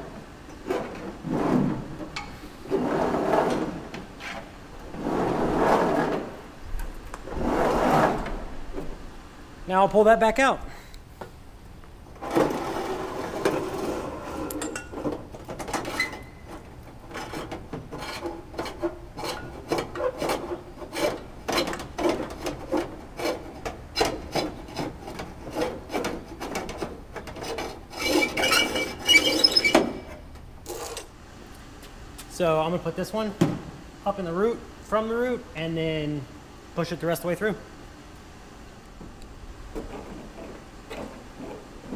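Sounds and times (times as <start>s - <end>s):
wires scraping inside metal wing: 7.3s - 8.4s.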